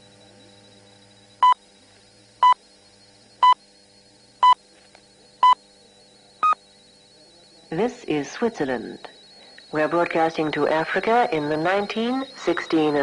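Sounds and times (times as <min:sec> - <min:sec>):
faint shortwave reception tones: 0:00.0 - 0:13.0
short time signal beeps: 0:02.4 - 0:02.6, 0:04.4 - 0:04.6, 0:06.4 - 0:13.0.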